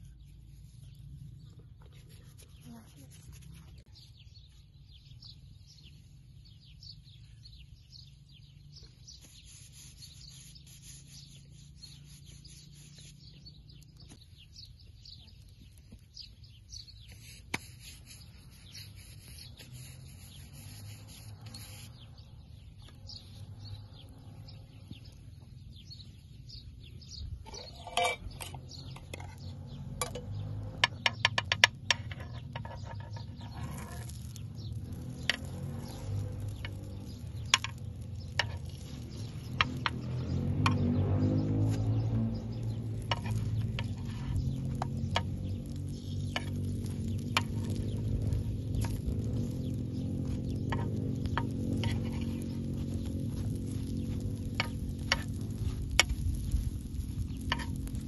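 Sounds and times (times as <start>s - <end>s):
small birds chirping: 0.0s - 58.0s
low rumble: 32.8s - 58.0s.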